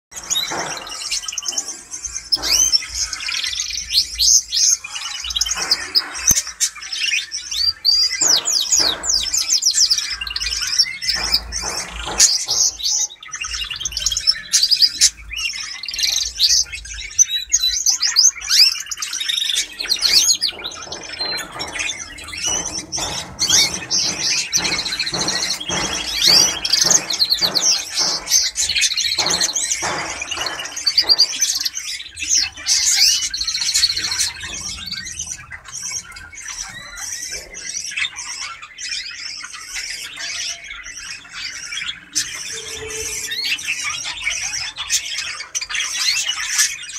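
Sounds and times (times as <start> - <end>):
canary trilling and chirping: 0.1 - 46.9.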